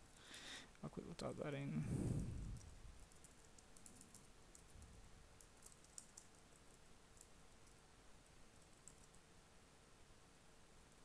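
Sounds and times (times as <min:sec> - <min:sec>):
faint keyboard typing: 0:02.4 - 0:09.4.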